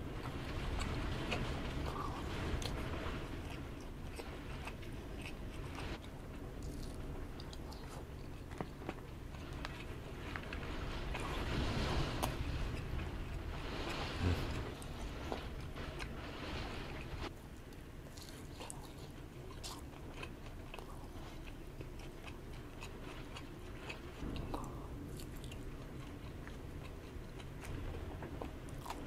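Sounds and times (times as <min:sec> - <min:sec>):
low wind rumble: 0:00.0 - 0:29.0
person chewing food: 0:03.4 - 0:10.4, 0:17.7 - 0:27.7, 0:28.4 - 0:29.0.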